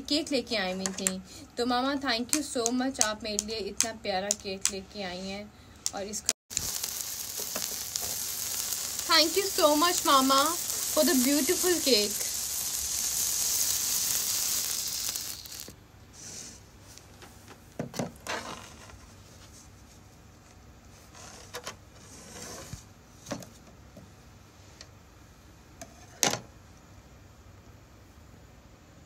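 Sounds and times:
sparkler fizzing: 0:06.5 - 0:15.8.

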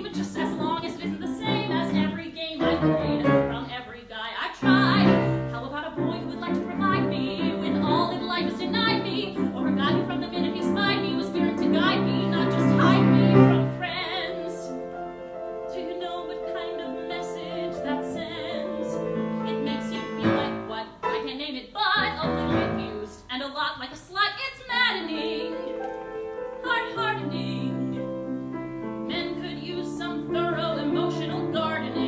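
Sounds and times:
piano accompaniment: 0:00.0 - 0:03.9, 0:04.6 - 0:23.3, 0:24.9 - 0:32.0
woman singing with vibrato: 0:00.0 - 0:26.0, 0:26.6 - 0:28.2, 0:29.0 - 0:32.0.

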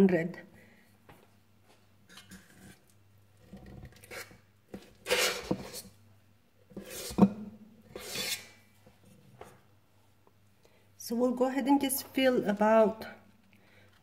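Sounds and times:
utensil scraping metal bowl: 0:02.1 - 0:05.9, 0:06.8 - 0:08.6.

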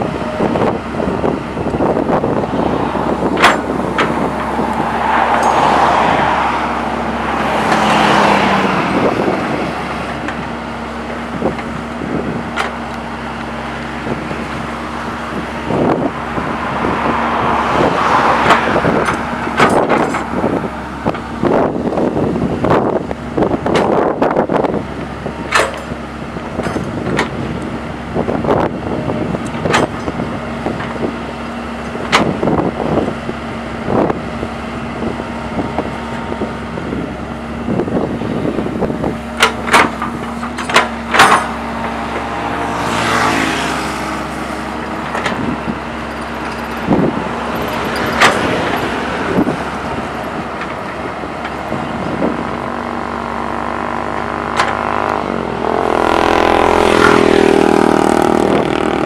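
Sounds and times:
excavator diesel engine: 0:00.0 - 0:59.0
rushing noise: 0:01.1 - 0:10.8.

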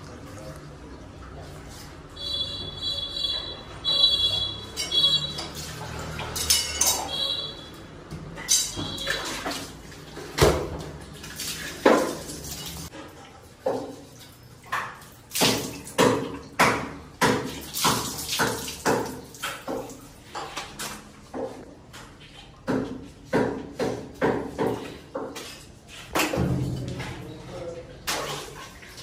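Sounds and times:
meat splashing in water: 0:04.2 - 0:06.5, 0:08.8 - 0:12.9, 0:13.5 - 0:21.2.

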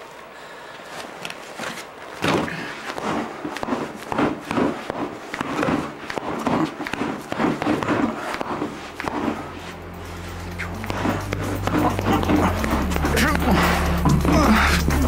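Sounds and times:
boxing gloves thudding on dummy: 0:02.2 - 0:09.5.

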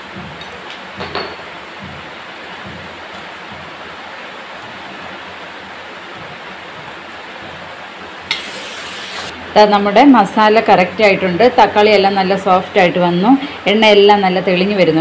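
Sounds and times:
heavy rain hiss: 0:01.5 - 0:09.5.

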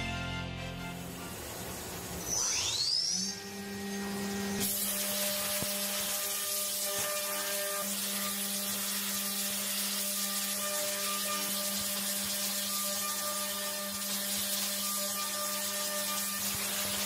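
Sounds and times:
spindle high hum: 0:00.0 - 0:04.7.

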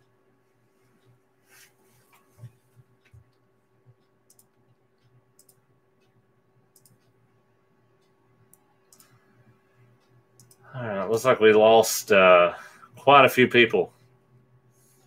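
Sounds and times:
faint steady hum: 0:00.0 - 0:15.0
faint sharp clicks: 0:04.0 - 0:07.2, 0:08.0 - 0:09.3, 0:10.0 - 0:10.6.

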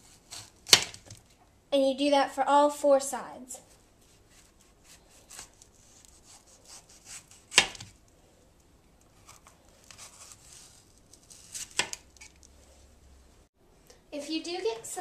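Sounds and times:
knife slicing pepper: 0:04.3 - 0:07.9, 0:09.2 - 0:12.4.

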